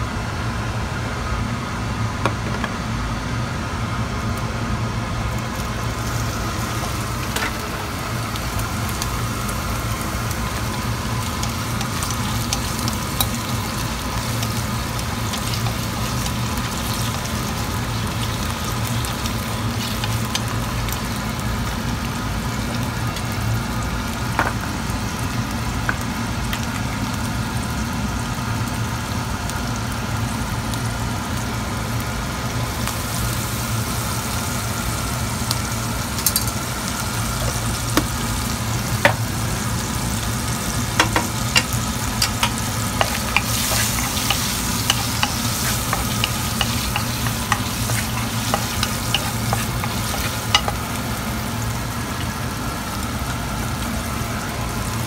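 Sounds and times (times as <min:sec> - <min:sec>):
shrimp sizzling in a pan: 0:05.3 - 0:55.0
steady low hum: 0:31.6 - 0:54.8.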